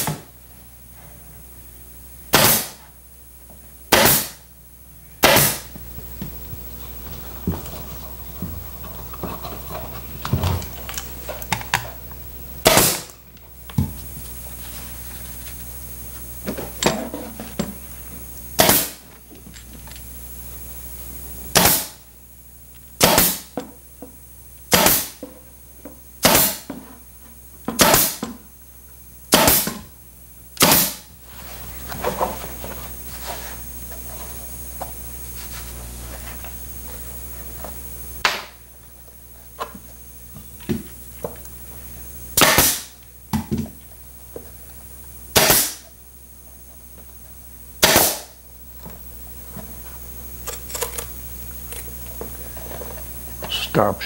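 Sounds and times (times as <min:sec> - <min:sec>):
pneumatic staple gun shots: 0:00.0 - 0:00.3, 0:02.3 - 0:02.8, 0:03.9 - 0:04.4, 0:05.2 - 0:05.7, 0:12.6 - 0:13.2, 0:18.6 - 0:19.0, 0:21.5 - 0:22.0, 0:23.0 - 0:23.6, 0:24.7 - 0:25.2, 0:26.2 - 0:26.7, 0:27.8 - 0:28.3, 0:29.3 - 0:29.8, 0:30.6 - 0:31.1, 0:38.2 - 0:38.6, 0:42.4 - 0:43.0, 0:45.3 - 0:45.9, 0:47.8 - 0:48.4.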